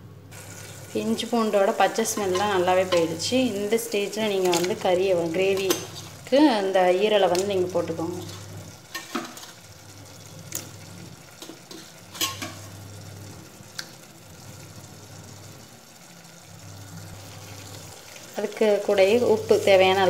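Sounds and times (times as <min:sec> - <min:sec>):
food frying with soft sizzle: 0:00.3 - 0:20.0
clinks against pot: 0:11.4 - 0:12.6.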